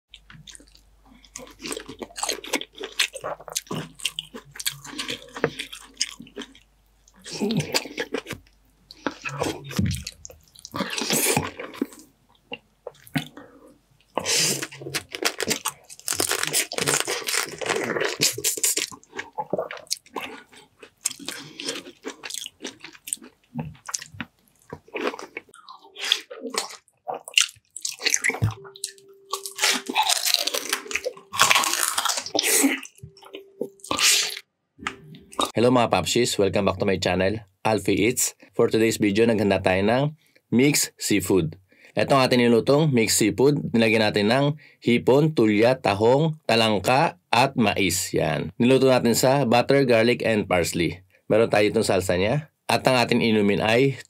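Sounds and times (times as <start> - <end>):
chewing and slurping: 0.1 - 34.4
crunching crab shell: 14.2 - 28.5, 29.3 - 33.0.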